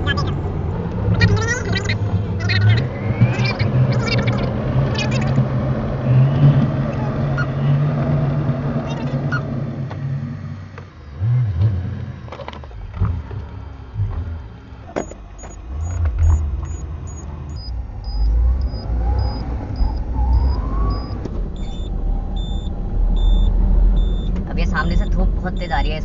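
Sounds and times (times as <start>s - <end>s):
car cabin engine rumble: 0.0s - 26.0s
faint rising whine: 0.0s - 26.0s
high-pitched electronic beeps: 15.0s - 25.9s.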